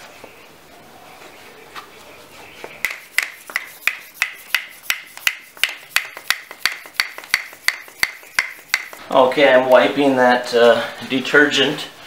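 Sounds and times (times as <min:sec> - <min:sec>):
bicycle hand pump strokes: 0:02.8 - 0:09.0.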